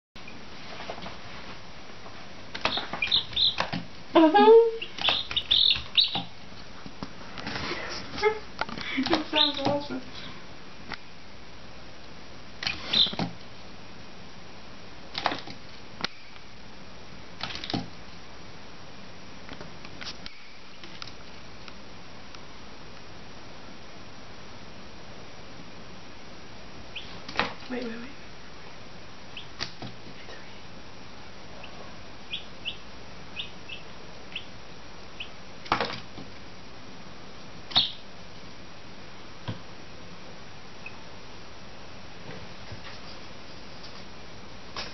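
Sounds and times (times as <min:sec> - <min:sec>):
chick pecking on cardboard: 0:02.5 - 0:04.0, 0:04.8 - 0:07.7, 0:12.6 - 0:13.5, 0:15.1 - 0:16.2, 0:17.4 - 0:18.0
chick peeping: 0:02.5 - 0:06.4, 0:09.0 - 0:10.0, 0:12.6 - 0:13.3, 0:26.9 - 0:27.3, 0:29.3 - 0:29.7, 0:31.5 - 0:35.4, 0:37.7 - 0:38.0, 0:40.8 - 0:41.1.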